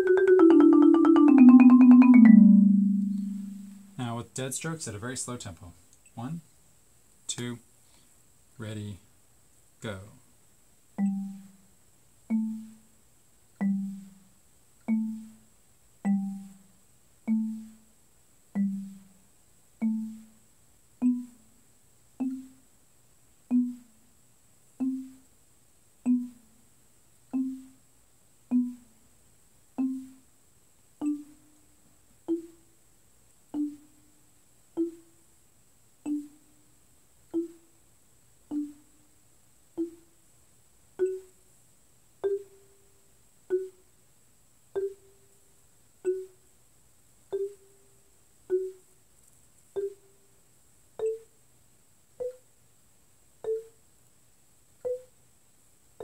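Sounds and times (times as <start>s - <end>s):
marimba dead strokes: 0.0s - 4.1s, 11.0s - 11.6s, 12.3s - 12.9s, 26.1s - 26.4s.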